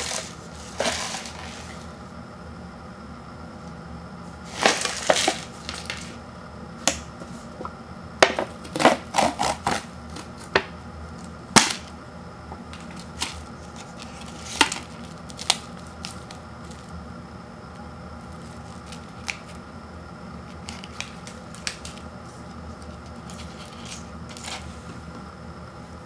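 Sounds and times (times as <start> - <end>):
foil packet crinkling: 4.5 - 6.2, 12.8 - 17.0, 18.2 - 19.7, 20.4 - 24.7.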